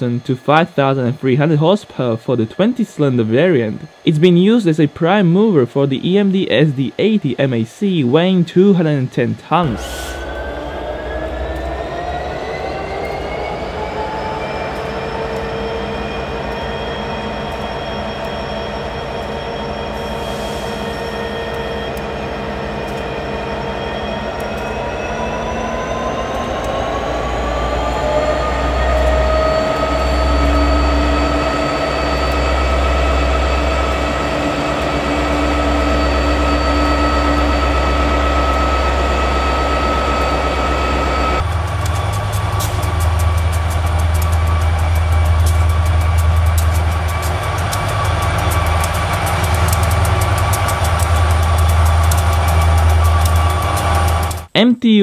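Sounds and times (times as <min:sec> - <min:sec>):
locomotive diesel engine throttling up: 0:09.6 - 0:54.5.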